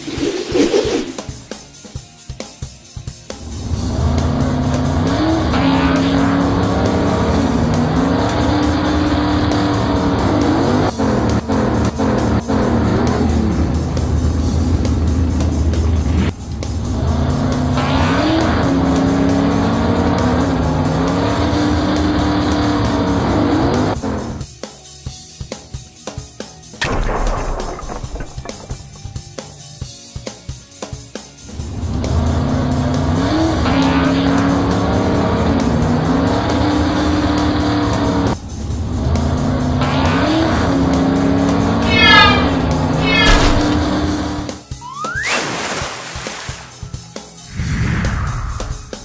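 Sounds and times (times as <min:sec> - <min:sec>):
background music with steady beat: 0:01.3 - 0:05.1
cartoon race car engine revving: 0:03.4 - 0:15.2, 0:16.0 - 0:24.4, 0:31.5 - 0:45.2.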